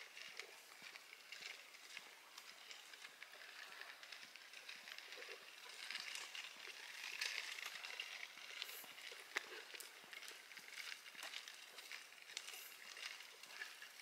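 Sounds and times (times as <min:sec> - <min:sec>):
faint outdoor rustling: 0:00.0 - 0:14.0
small crackles and clicks: 0:00.0 - 0:14.0.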